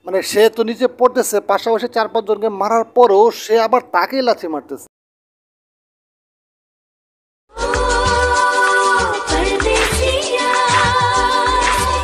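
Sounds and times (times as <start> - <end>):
person singing: 7.5 - 12.0
steady drum beat: 7.6 - 12.0.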